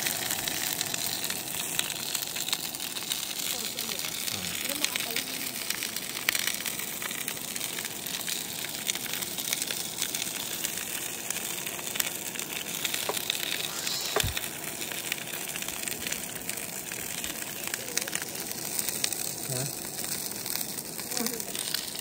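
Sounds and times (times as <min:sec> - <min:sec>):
steaks sizzling in a frying pan: 0:00.0 - 0:22.0.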